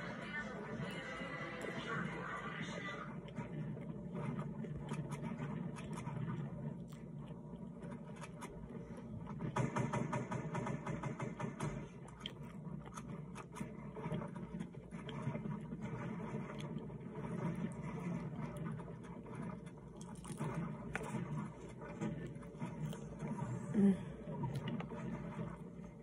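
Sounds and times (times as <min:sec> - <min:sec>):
low background hum: 0:00.0 - 0:26.0
person chewing with crunches: 0:02.8 - 0:09.6, 0:11.9 - 0:26.0.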